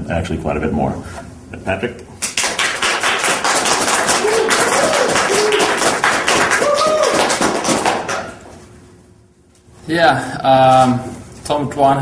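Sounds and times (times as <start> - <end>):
audience applauding: 2.4 - 8.4.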